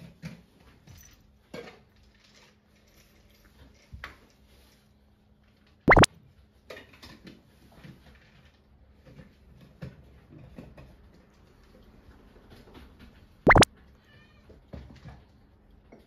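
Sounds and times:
cartoon pop rising pitch: 5.9 - 6.1, 13.5 - 13.7.

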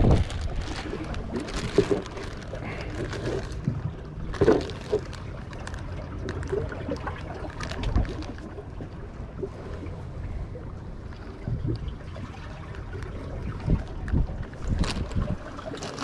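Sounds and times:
plastic bag crinkling: 0.0 - 8.6, 13.8 - 16.0.

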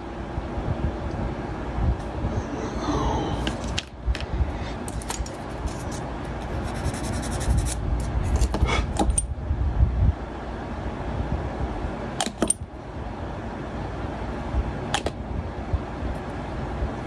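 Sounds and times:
low handling rumble: 0.6 - 4.9.

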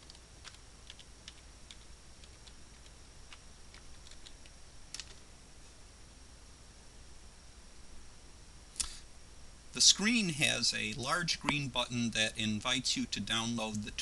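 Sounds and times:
faint keyboard typing: 0.0 - 5.3
steady low hum: 0.0 - 14.0.

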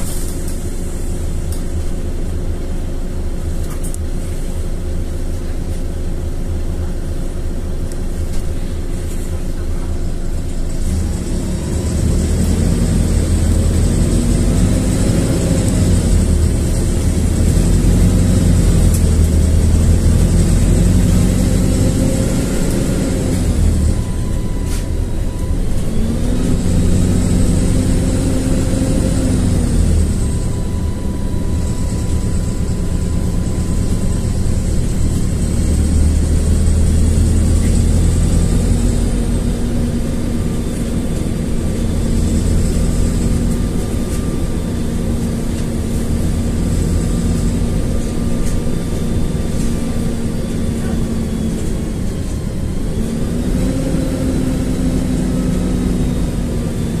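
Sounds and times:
bus engine and road drone: 0.0 - 57.0
faint high whines: 18.4 - 57.0.

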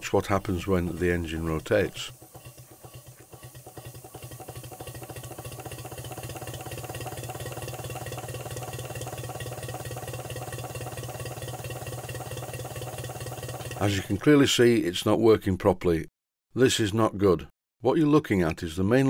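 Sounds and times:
model steam engine exhaust beats: 0.0 - 14.2.

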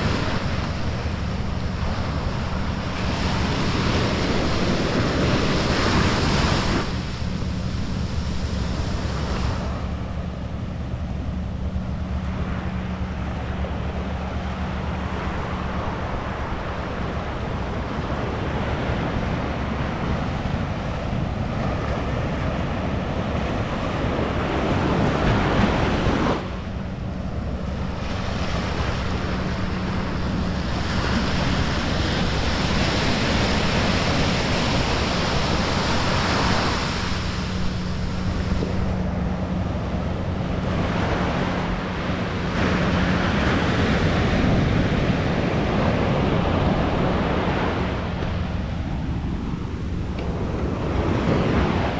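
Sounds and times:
ocean surf breaking: 0.0 - 51.9
wind buffeting microphone: 0.0 - 51.9.

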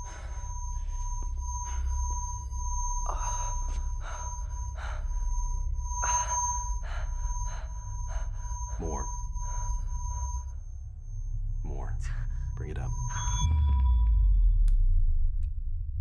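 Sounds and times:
low rumbling drone: 0.0 - 16.0
piercing whine: 0.0 - 16.0
high-pitched electronic screeching tone: 11.6 - 13.7.

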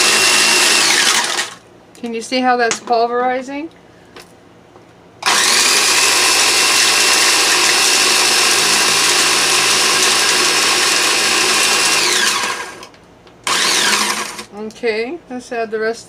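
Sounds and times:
food processor motor whining: 0.0 - 1.6, 5.2 - 14.5.

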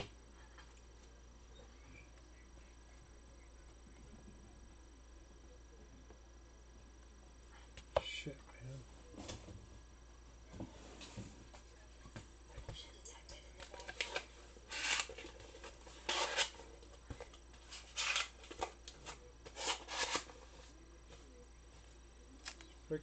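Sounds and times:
cards rustling: 13.6 - 20.7.

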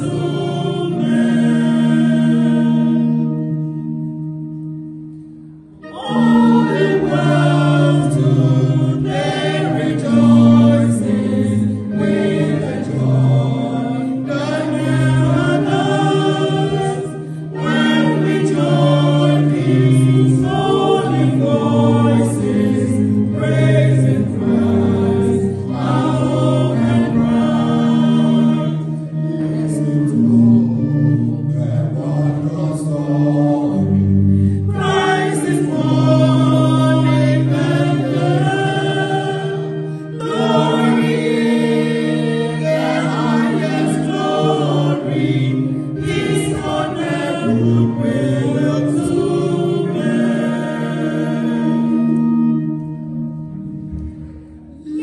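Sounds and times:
choir singing: 0.0 - 55.0.

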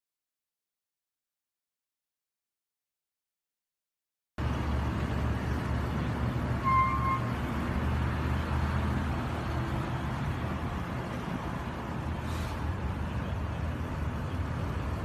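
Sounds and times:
low traffic rumble: 4.4 - 15.0
car horn toot: 6.6 - 7.3.

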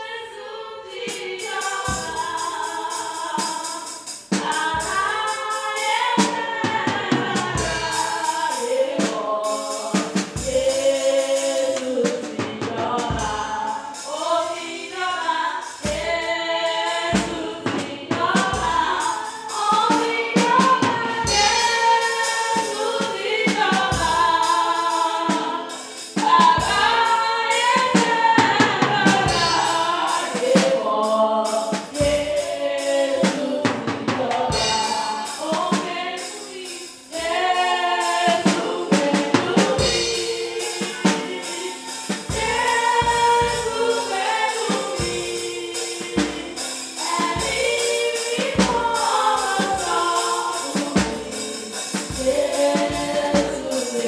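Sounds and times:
choir singing gospel: 0.0 - 54.0
drums: 0.9 - 54.0.

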